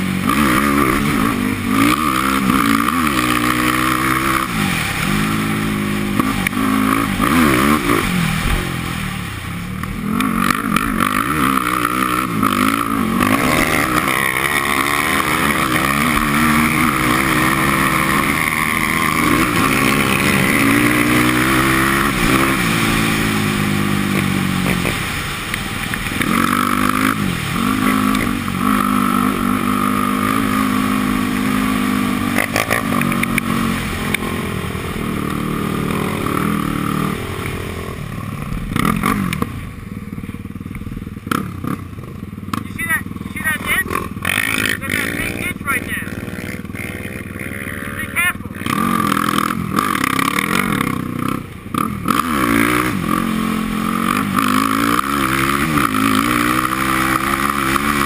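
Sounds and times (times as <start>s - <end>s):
quad engine revving: 0.0s - 39.9s, 40.5s - 58.0s.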